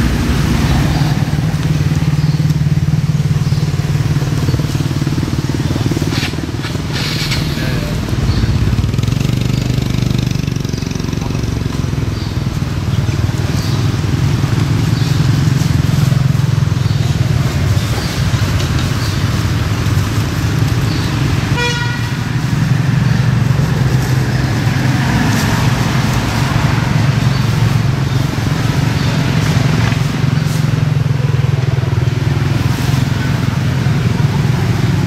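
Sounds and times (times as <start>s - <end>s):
motor traffic rumble: 0.0s - 35.0s
vehicle horn toot: 21.5s - 22.2s.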